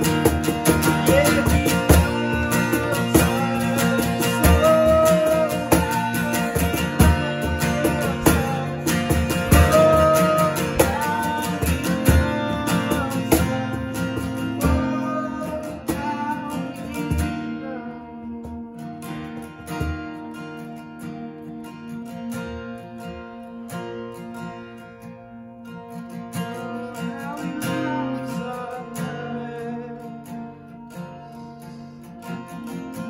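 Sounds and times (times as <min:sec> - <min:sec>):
person singing: 0:00.0 - 0:19.1, 0:26.6 - 0:30.4
cajon beating: 0:00.0 - 0:20.8
acoustic guitar strumming: 0:00.0 - 0:33.0.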